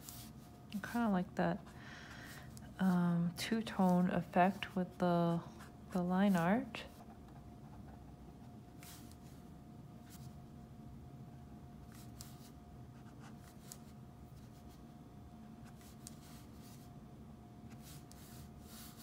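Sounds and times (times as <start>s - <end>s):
room hum: 0.0s - 19.0s.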